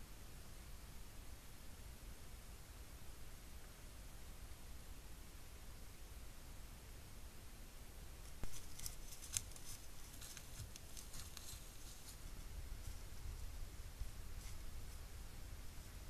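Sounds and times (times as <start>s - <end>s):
footsteps crackling dry leaves: 8.4s - 13.1s.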